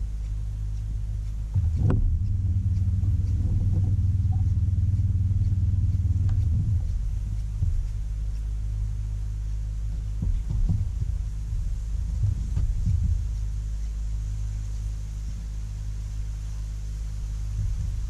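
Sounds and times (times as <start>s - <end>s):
boat motor humming: 0.0s - 18.0s.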